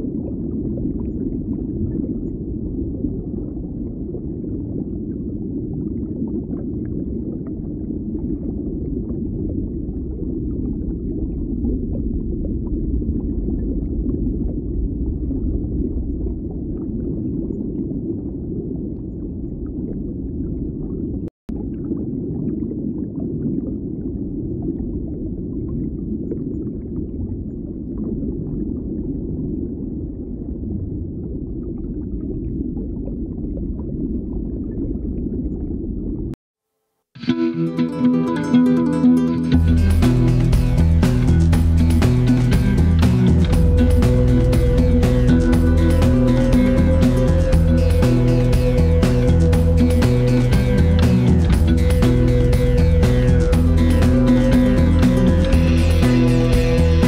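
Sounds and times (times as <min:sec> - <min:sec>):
low rumbling ambience: 0:00.0 - 0:22.2, 0:39.6 - 0:57.0.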